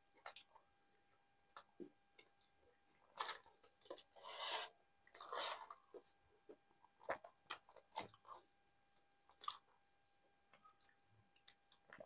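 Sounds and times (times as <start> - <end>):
chewing and mouth clicks: 9.0 - 9.8.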